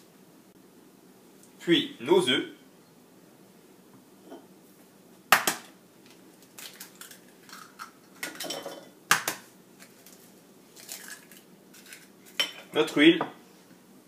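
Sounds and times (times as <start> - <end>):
eggshell crackle: 6.0 - 8.3, 9.2 - 12.4.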